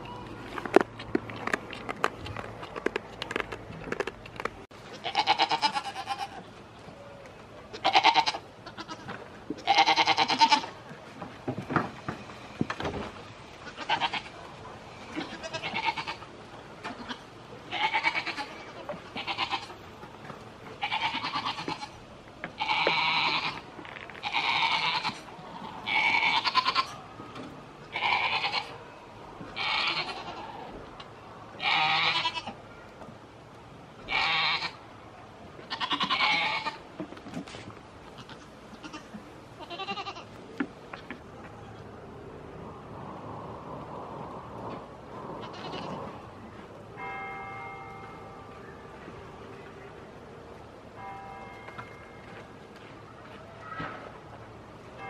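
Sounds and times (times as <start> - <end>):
goats bleating: 4.9 - 6.4, 7.7 - 10.7, 15.1 - 16.3, 16.9 - 19.7, 20.8 - 22.0, 22.6 - 23.6, 24.2 - 27.0, 27.9 - 28.8, 29.6 - 30.7, 31.6 - 32.6, 35.7 - 36.8, 38.2 - 40.3.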